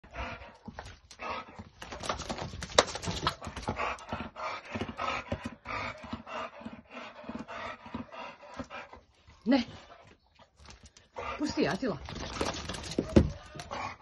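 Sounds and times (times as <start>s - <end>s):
dog panting and sniffing: 0.0s - 14.0s.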